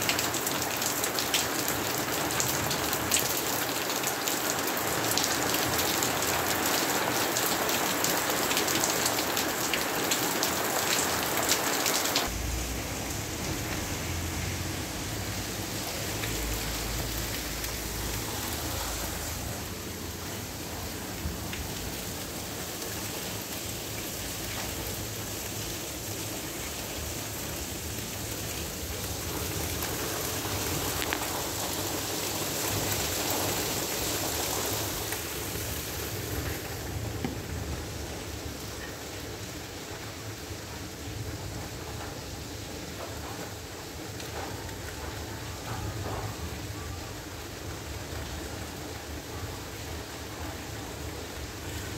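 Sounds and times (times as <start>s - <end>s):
rain falling: 0.0s - 51.9s
low rumble: 12.3s - 19.6s.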